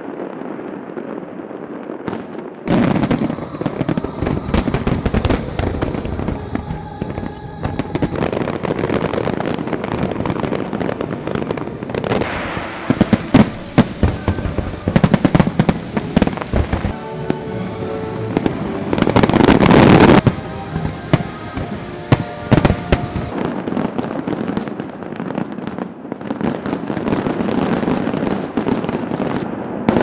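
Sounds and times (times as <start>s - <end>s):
fireworks bangs and crackling: 0.0s - 30.0s.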